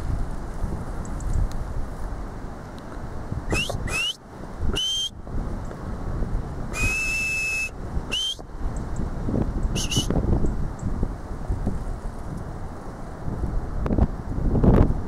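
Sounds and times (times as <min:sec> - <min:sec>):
wind rumbling on microphone: 0:00.0 - 0:15.0
shepherd's whistle: 0:03.5 - 0:05.2, 0:06.7 - 0:08.5, 0:09.7 - 0:10.2.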